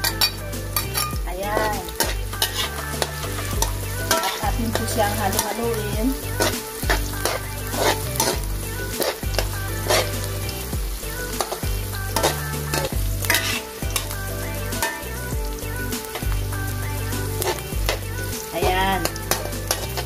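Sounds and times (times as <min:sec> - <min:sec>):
metal spoon scraping a wok: 0:00.0 - 0:15.1
garlic and onion sizzling in oil: 0:00.0 - 0:20.0.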